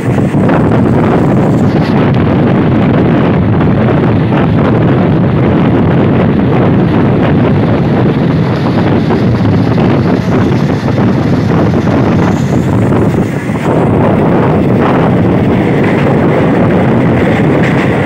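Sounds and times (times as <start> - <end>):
train running on rails: 0.0 - 18.0
wind buffeting microphone: 0.0 - 18.0.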